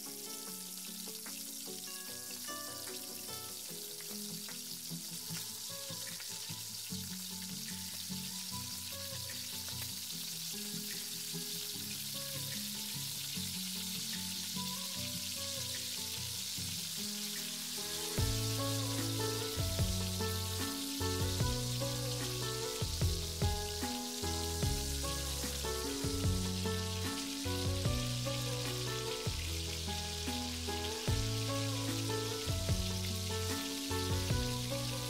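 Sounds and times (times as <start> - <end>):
background music: 0.0 - 9.0, 17.1 - 35.0
fries deep-frying in oil: 0.0 - 35.0.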